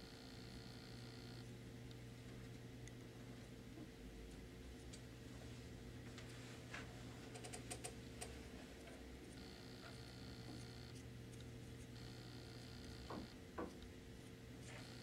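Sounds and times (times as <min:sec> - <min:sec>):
faint high whine: 0:00.0 - 0:01.5, 0:09.3 - 0:11.0, 0:12.0 - 0:13.4
electrical hum: 0:00.0 - 0:15.0
sculpting tools tapping clay: 0:13.0 - 0:13.9.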